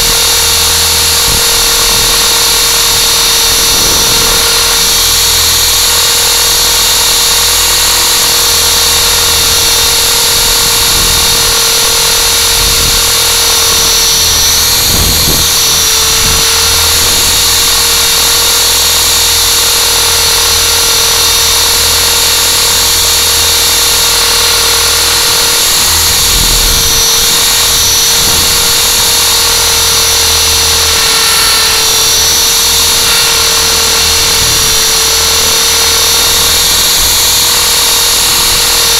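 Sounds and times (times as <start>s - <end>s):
aircraft propellers whining: 0.0s - 38.9s.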